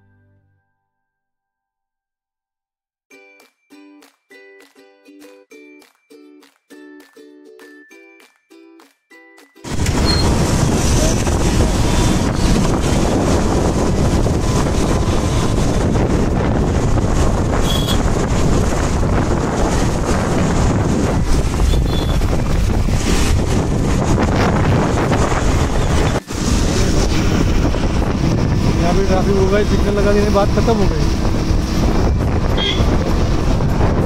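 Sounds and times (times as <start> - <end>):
wind buffeting microphone: 9.7 - 34.0.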